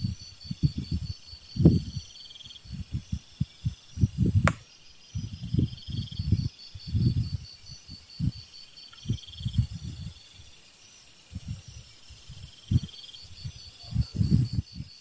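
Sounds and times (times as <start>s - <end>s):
crickets chirping: 0.0s - 15.0s
wind gusting against microphone: 0.0s - 15.0s
sharp click: 4.4s - 4.6s.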